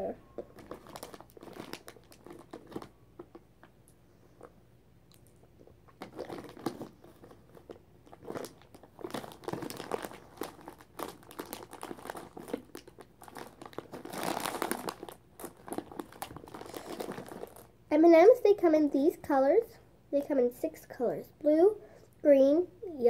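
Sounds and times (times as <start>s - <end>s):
plastic wrapper crinkling: 0.3s - 3.4s, 5.6s - 17.8s.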